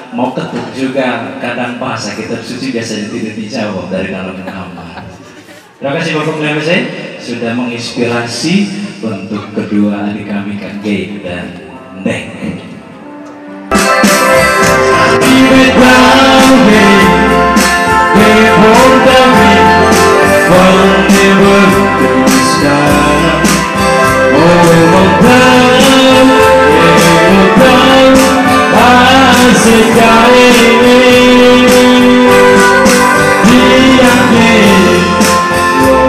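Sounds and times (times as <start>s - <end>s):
guitar: 13.0s - 36.0s
bass: 13.7s - 36.0s
person singing: 13.7s - 36.0s
steady beat: 13.7s - 36.0s.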